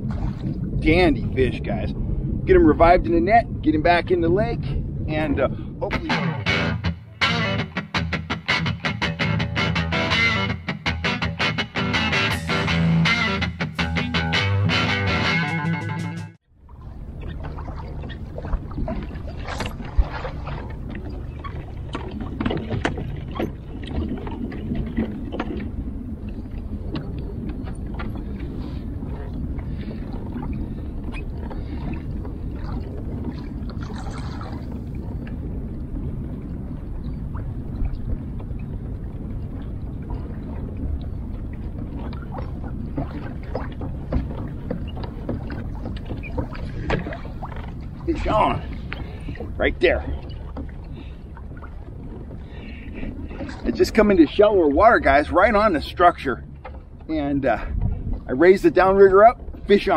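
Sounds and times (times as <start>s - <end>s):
water slapping against kayak hull: 0.0s - 1.2s, 16.6s - 59.9s
low rumble: 0.0s - 14.9s, 16.4s - 59.9s
small splashes and knocks: 16.7s - 25.8s, 29.1s - 35.4s, 41.5s - 53.7s.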